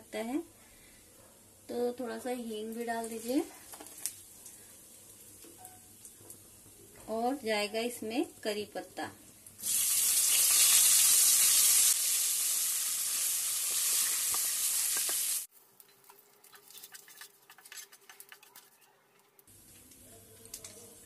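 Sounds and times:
leaves sizzling in hot oil: 0:02.6 - 0:06.7, 0:09.3 - 0:17.0.

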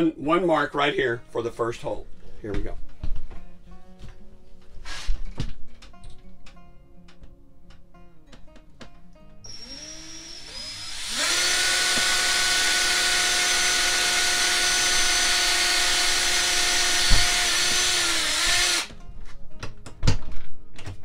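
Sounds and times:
cordless drill whining: 0:09.4 - 0:18.9.

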